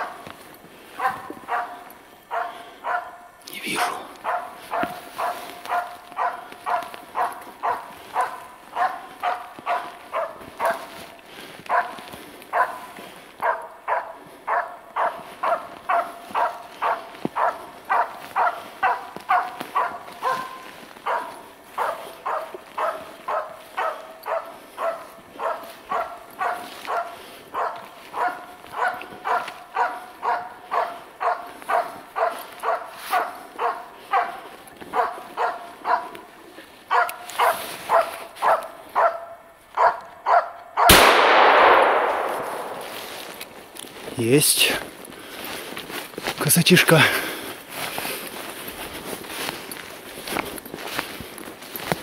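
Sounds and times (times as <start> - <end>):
dog barking rhythmically: 1.0 - 10.9, 11.7 - 36.2, 36.9 - 41.0.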